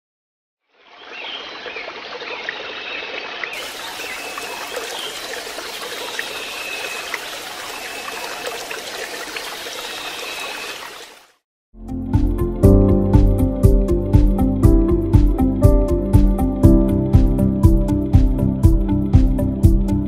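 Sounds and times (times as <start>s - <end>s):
running water: 0.7s - 11.4s.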